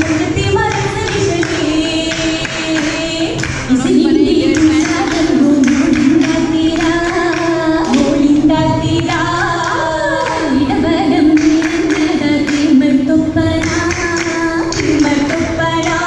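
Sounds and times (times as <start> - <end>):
rhythmic hand clapping: 0.0 - 16.0
women singing in chorus: 0.0 - 16.0.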